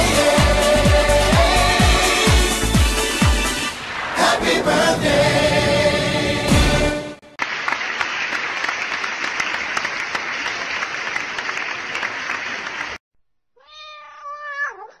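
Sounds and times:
applause: 7.4 - 13.0
cat meowing: 13.6 - 15.0.

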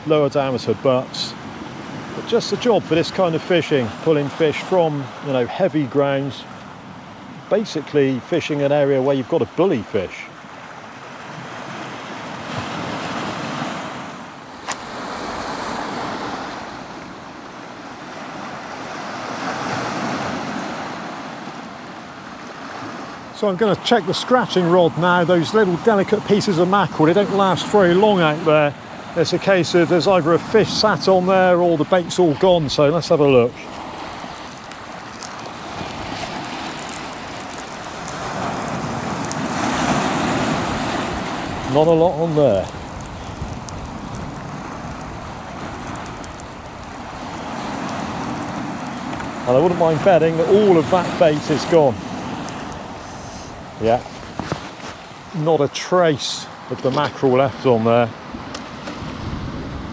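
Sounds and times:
waves breaking on rocky shore: 0.0 - 59.9.

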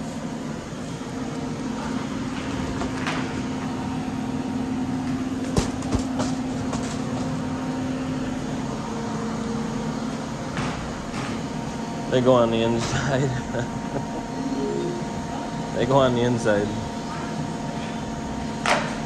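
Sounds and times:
steady mechanical hum: 0.0 - 19.0.

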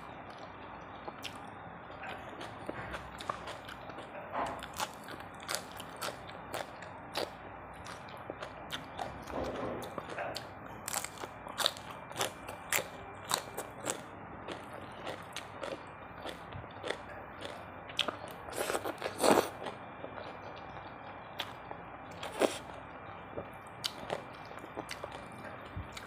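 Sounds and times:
wet crunchy chewing: 2.0 - 20.4, 22.2 - 22.7.

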